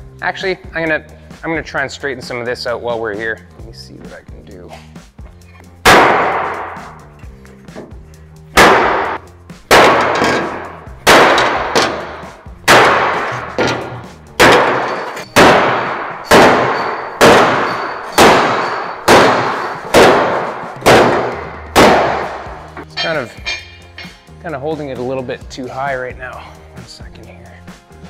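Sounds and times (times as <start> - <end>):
hammer clanging on sheet steel: 8.6 - 24.2.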